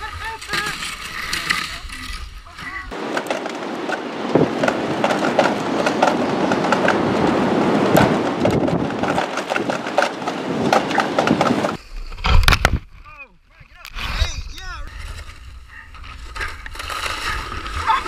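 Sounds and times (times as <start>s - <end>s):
plastic sled scraping over ice: 0.0s - 11.8s, 14.9s - 18.0s
strong wind: 2.1s - 13.0s.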